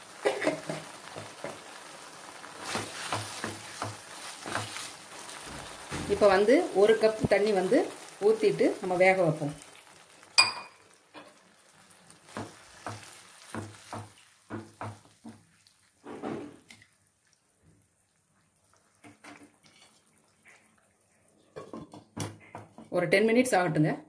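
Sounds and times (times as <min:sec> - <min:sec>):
wooden spatula scraping pan: 0:02.6 - 0:06.8, 0:19.0 - 0:20.2.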